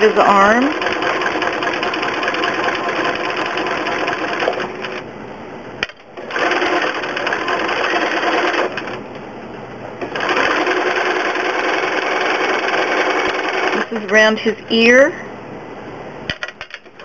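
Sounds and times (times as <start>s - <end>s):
sewing machine stitching fast: 0.6s - 5.0s, 6.2s - 9.0s, 10.0s - 14.0s.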